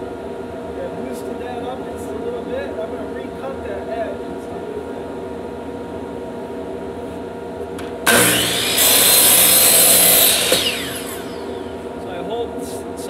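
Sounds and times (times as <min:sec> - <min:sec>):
miter saw cutting wood: 0:08.1 - 0:11.8
saw blade winding down: 0:08.1 - 0:11.8.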